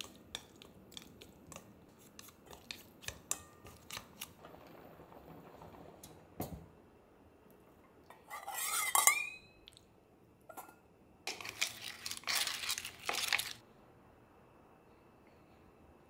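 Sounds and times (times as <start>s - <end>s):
metal mesh strainer scraping: 8.2s - 9.3s, 11.3s - 13.6s
clatter of metal utensils and shells: 11.3s - 13.6s.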